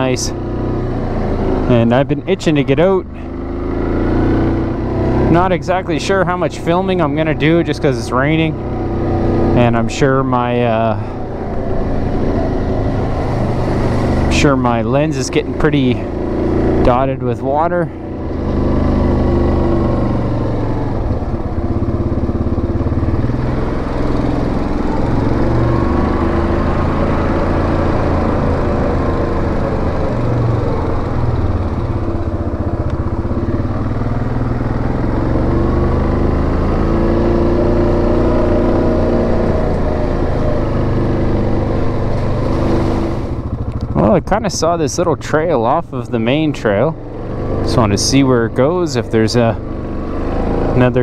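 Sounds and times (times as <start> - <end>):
atv engine running: 0.0 - 51.0.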